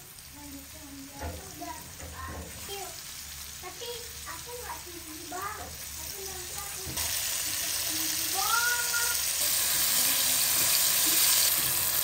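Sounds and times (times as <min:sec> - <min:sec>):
chicken deep-frying in oil: 0:00.0 - 0:12.0.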